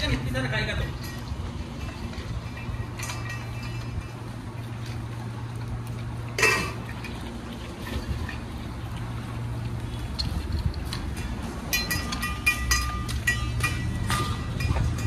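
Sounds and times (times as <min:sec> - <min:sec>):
metal dog bowls clanking: 0:01.0 - 0:04.2, 0:06.3 - 0:07.2, 0:11.2 - 0:15.0.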